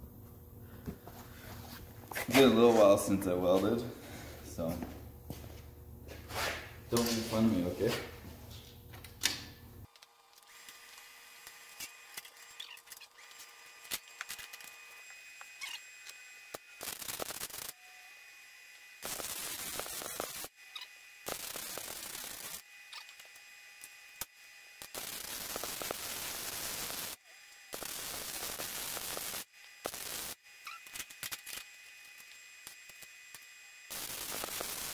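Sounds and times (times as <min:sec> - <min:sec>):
welding arc crackling: 0:09.8 - 0:17.8, 0:18.8 - 0:34.9.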